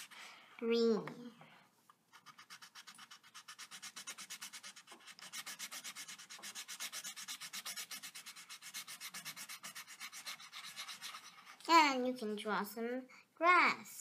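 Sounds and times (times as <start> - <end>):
pencil scratching on paper: 0.0 - 0.2, 2.1 - 11.7.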